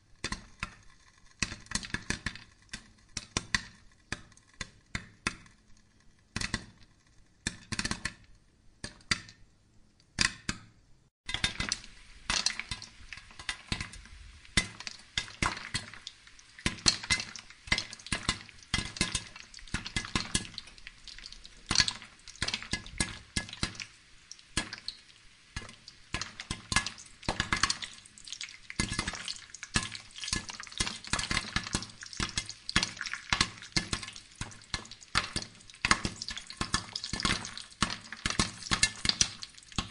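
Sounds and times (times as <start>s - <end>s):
coals and corn crackling: 11.3s - 39.9s.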